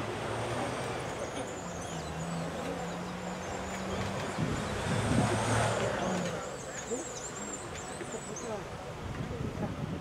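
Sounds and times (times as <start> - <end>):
small birds chirping: 1.1 - 5.0, 6.1 - 8.6.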